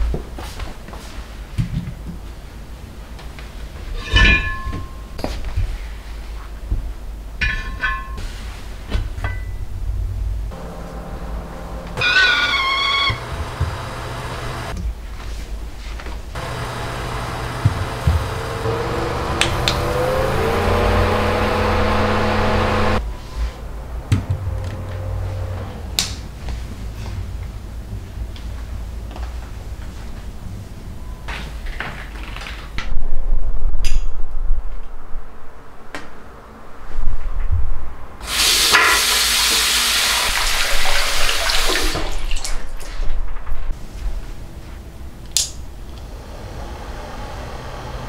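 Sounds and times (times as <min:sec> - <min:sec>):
electric desk fan running: 0:10.5 - 0:14.8, 0:16.3 - 0:23.0, 0:43.8 - 0:48.0
tap water running: 0:12.0 - 0:14.8, 0:16.4 - 0:20.0, 0:38.2 - 0:42.9.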